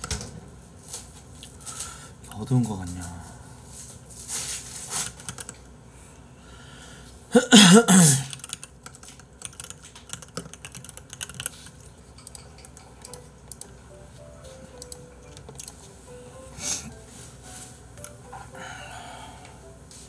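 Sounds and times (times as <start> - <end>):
keyboard typing: 5.0 - 5.7, 8.2 - 13.8, 14.7 - 15.8
person coughing: 7.3 - 8.4.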